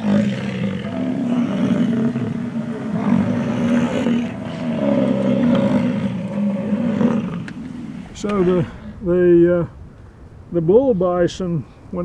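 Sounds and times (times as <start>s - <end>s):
bison bellowing: 0.0s - 8.8s.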